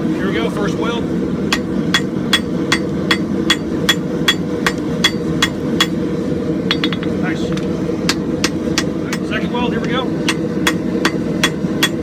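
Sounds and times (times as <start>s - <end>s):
steady low rumble: 0.0s - 12.0s
hammer striking steel on anvil: 1.5s - 6.0s, 6.7s - 7.2s, 8.1s - 9.3s, 10.2s - 12.0s.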